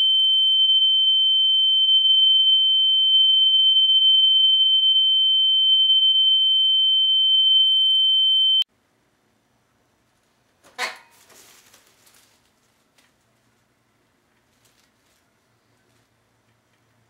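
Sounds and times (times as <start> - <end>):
high-pitched censor bleep: 0.0 - 8.6.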